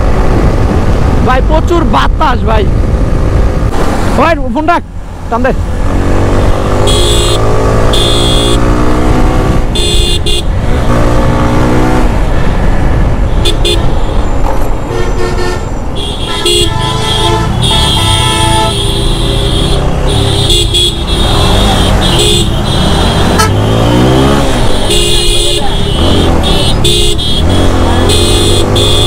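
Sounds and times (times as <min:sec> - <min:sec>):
motorcycle riding: 0:00.0 - 0:29.0
vehicle horns: 0:06.7 - 0:09.1, 0:09.7 - 0:11.2, 0:13.3 - 0:29.0.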